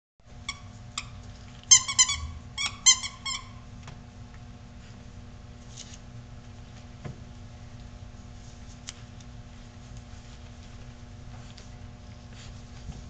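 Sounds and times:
steady low hum: 0.2 - 13.0.

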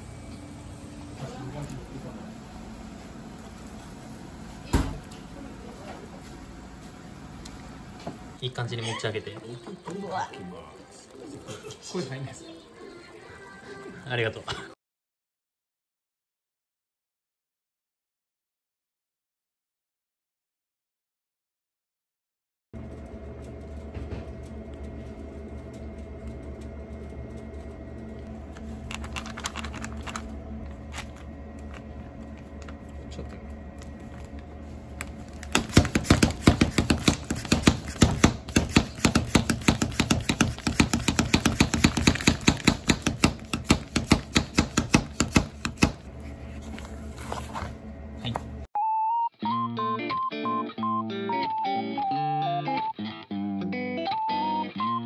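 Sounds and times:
steady hum: 0.0 - 8.7, 22.8 - 48.7
knife chopping on cutting board: 35.5 - 46.0.

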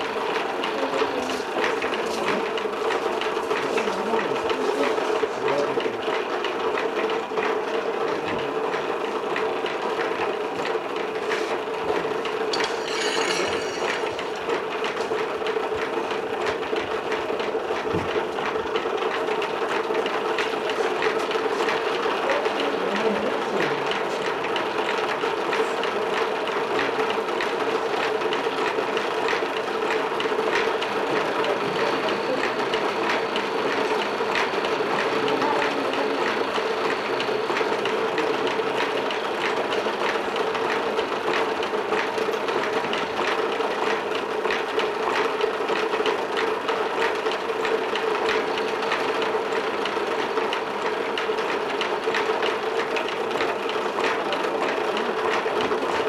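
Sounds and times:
machine humming: 12.0 - 15.8, 29.7 - 41.2.

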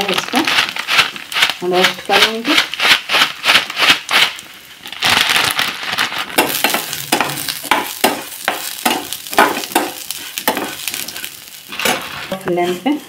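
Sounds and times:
vermicelli sizzling in a pan: 0.0 - 13.0
spatula scraping a pan: 6.3 - 13.0.

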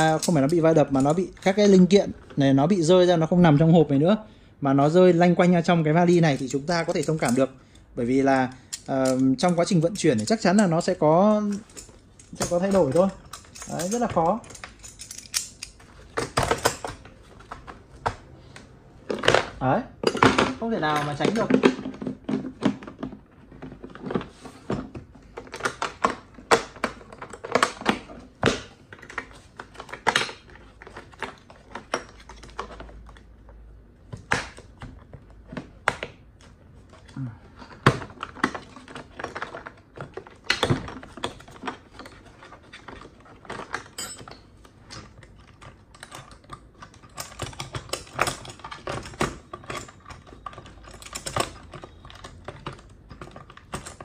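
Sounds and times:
metal tools clinking: 8.4 - 15.8, 42.9 - 44.5.

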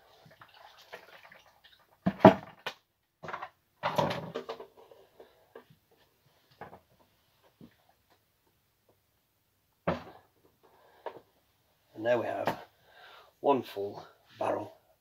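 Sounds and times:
plastic bucket thudding: 2.0 - 4.6, 9.8 - 10.3.

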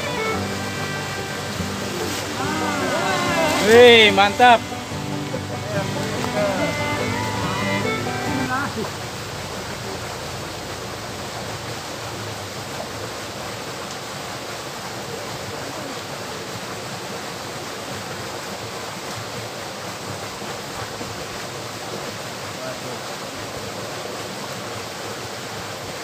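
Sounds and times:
water flowing in a stream: 0.0 - 26.0.

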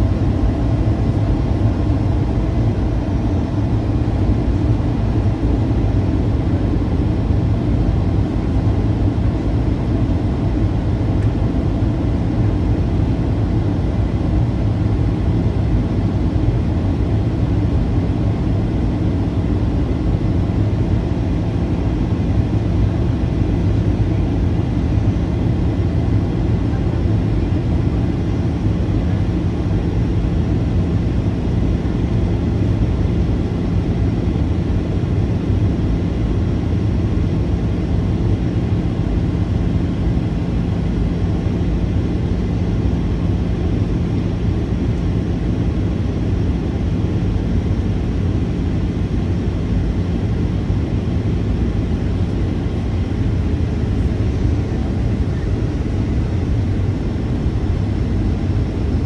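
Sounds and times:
airplane cabin noise: 0.0 - 59.0
faint steady hum: 0.0 - 59.0.

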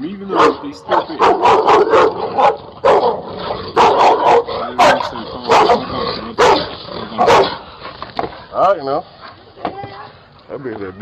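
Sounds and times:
dogs barking: 0.2 - 7.8.

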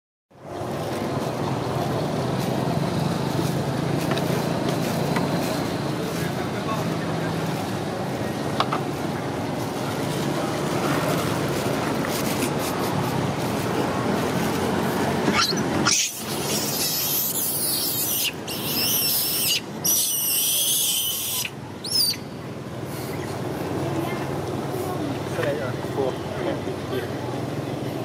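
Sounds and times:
steady background noise: 0.4 - 28.0
macaque squealing: 15.3 - 22.3.

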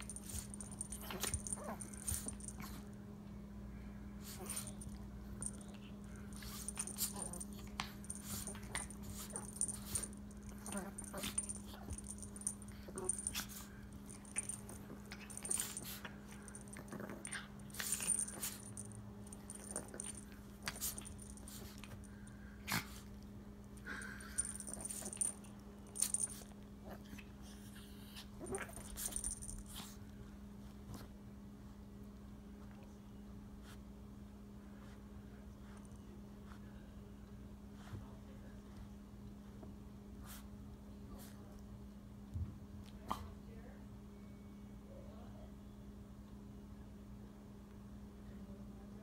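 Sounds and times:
small dogs growling and whining: 0.0 - 2.8, 6.4 - 13.6, 16.7 - 18.9, 27.9 - 29.8.

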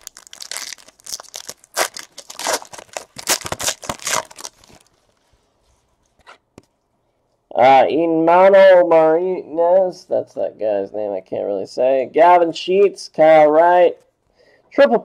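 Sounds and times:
foil wrapper tearing and crinkling: 0.0 - 4.9.

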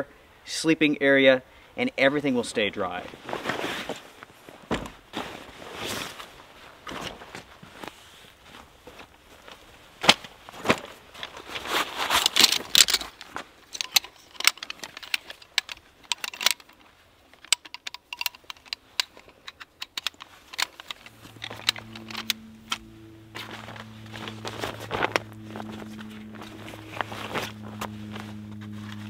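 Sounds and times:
low steady hum: 8.6 - 29.0
metal chair poles clinking: 12.1 - 29.0.

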